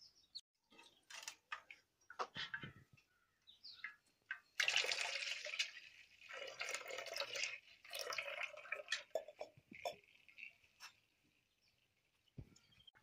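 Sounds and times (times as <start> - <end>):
liquid dripping: 3.8 - 12.8
milk pouring into a pot: 4.3 - 12.4.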